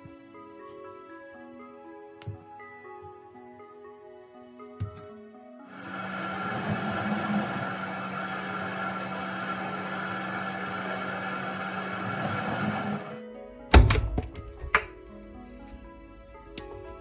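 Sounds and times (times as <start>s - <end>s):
washing machine running: 5.7s - 13.2s.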